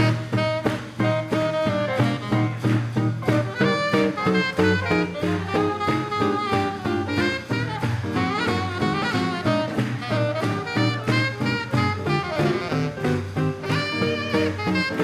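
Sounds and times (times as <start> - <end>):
double bass beat: 0.0 - 15.0
saxophone and brass melody: 0.0 - 15.0
swing jazz band playing: 0.0 - 15.0.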